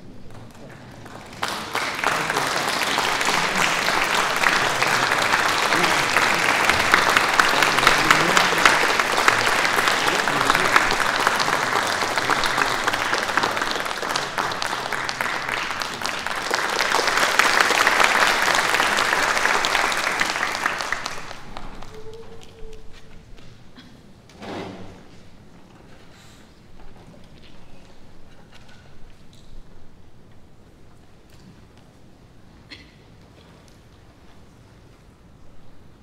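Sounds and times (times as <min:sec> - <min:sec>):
audience applauding: 0:00.3 - 0:23.0.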